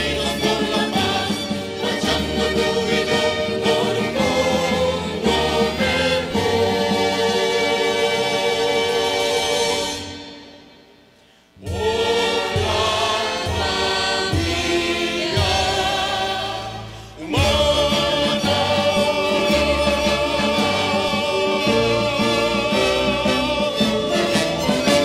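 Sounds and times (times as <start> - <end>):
orchestra and choir performing: 0.0 - 25.0.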